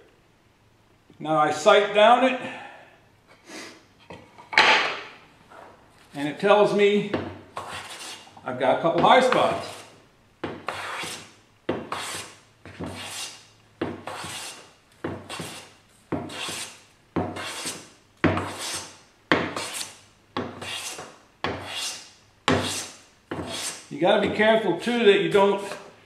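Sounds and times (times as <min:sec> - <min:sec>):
hand plane cutting wood shavings: 0:07.6 - 0:08.2, 0:11.9 - 0:13.3, 0:14.0 - 0:14.6, 0:15.3 - 0:15.6, 0:16.3 - 0:16.7, 0:17.4 - 0:17.8, 0:20.5 - 0:23.8.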